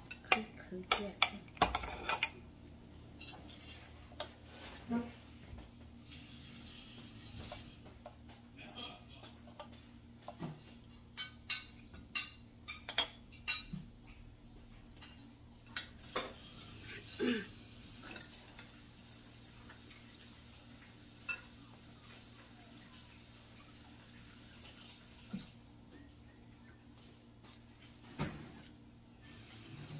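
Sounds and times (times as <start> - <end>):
spoons clinking on ceramic: 11.2 - 13.8.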